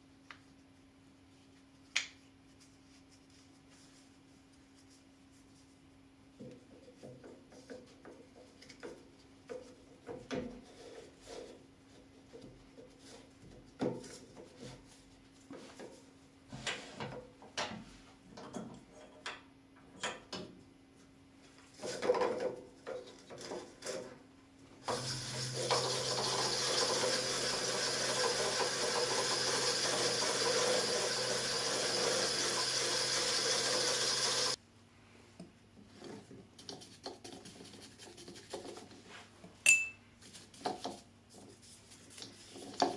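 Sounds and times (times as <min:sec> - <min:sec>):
lathe running: 0:25.0 - 0:34.6.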